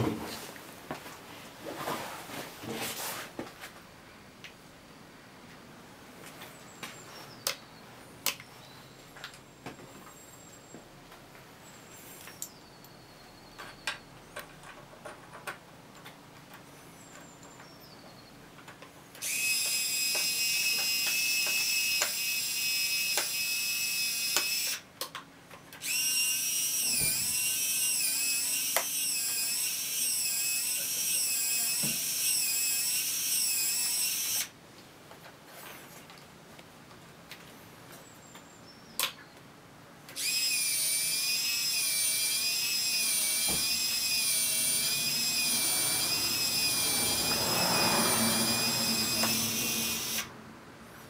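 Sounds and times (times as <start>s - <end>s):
electric servo whining: 19.2s - 24.8s, 25.8s - 34.5s, 40.2s - 50.3s
faint clicks and handling sounds: 34.7s - 39.5s.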